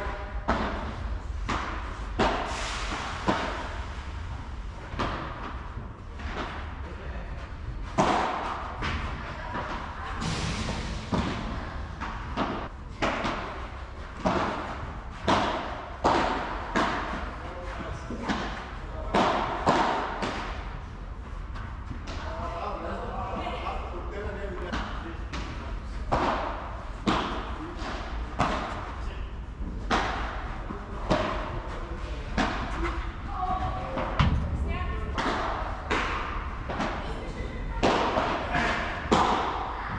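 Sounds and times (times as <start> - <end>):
ball hit by paddle rackets: 8.0 - 9.0, 14.2 - 17.2, 18.2 - 20.6, 24.7 - 28.8, 35.2 - 37.0, 37.8 - 39.6.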